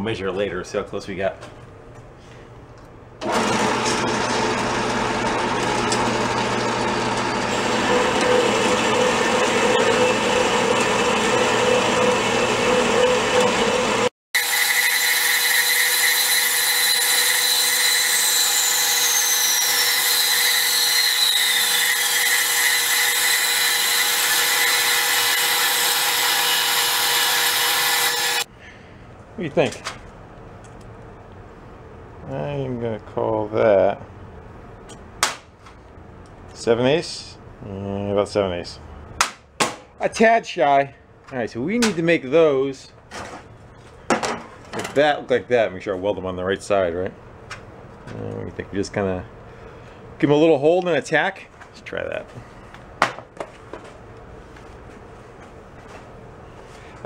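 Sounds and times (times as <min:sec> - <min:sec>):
band saw cutting steel tube: 0:03.2 - 0:28.5.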